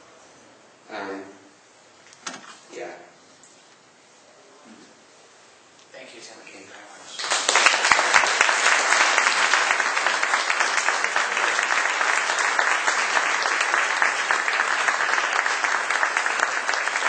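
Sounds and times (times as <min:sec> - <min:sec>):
audience applauding: 0:07.1 - 0:17.0.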